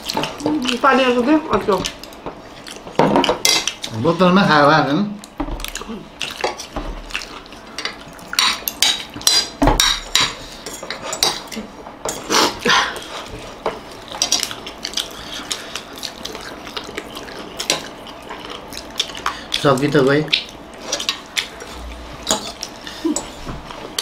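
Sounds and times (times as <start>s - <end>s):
wet mouth eating sounds: 5.2s - 8.7s, 14.3s - 23.4s.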